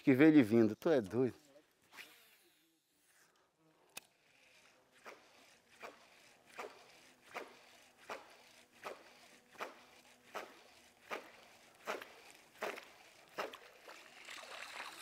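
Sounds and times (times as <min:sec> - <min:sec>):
fishing reel rasping: 0:11.2 - 0:15.0.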